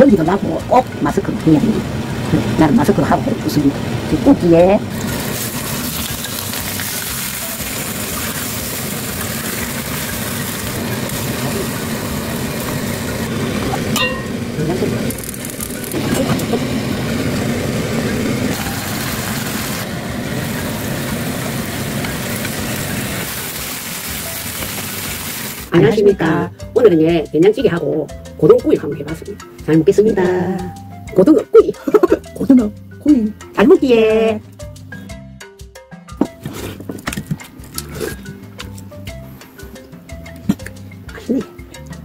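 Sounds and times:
fish sizzling in a pan: 4.9s - 13.5s, 18.5s - 25.7s.

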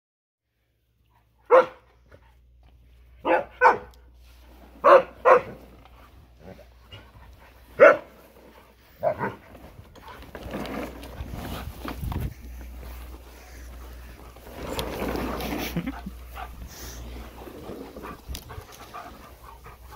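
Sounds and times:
dog barking: 1.5s - 1.9s, 3.2s - 4.0s, 4.8s - 5.6s, 7.8s - 8.1s.

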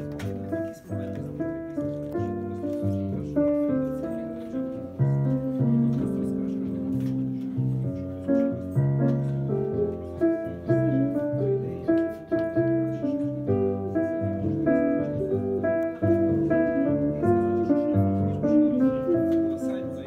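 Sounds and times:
piano playing chords: 0.0s - 20.0s.

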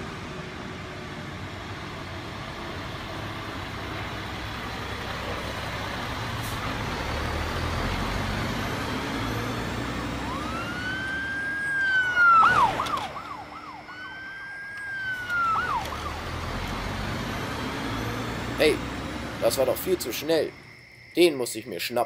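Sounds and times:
vehicle engine rumble: 0.0s - 21.8s
police siren wailing and yelping: 8.6s - 20.6s.

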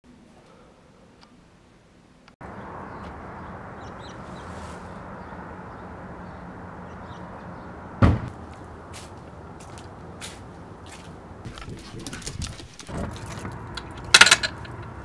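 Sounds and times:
loud thump: 8.0s - 8.3s.

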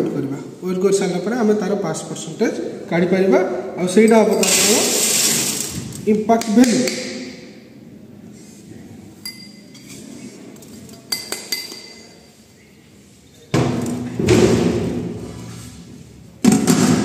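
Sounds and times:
metal cup clinking on sieve: 4.0s - 5.6s, 9.2s - 10.0s, 11.0s - 12.2s.

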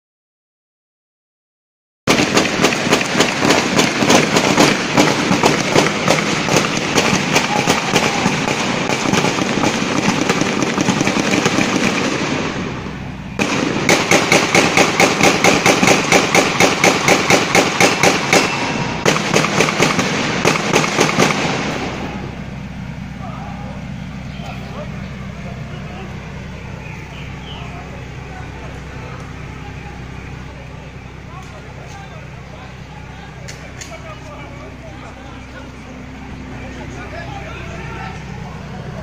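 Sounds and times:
rapid gunfire: 2.1s - 12.8s, 13.4s - 22.2s.

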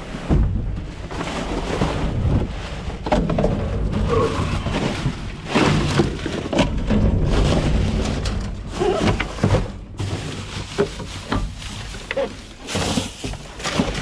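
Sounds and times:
wind buffeting microphone: 0.0s - 5.5s
rustles and knocks: 0.1s - 14.0s.

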